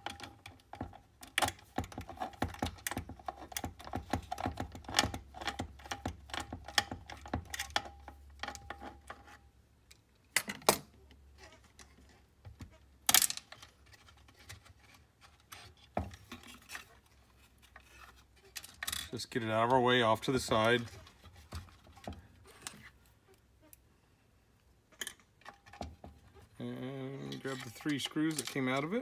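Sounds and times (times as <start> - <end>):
light metallic clicking and rattling: 27.2 - 29.0.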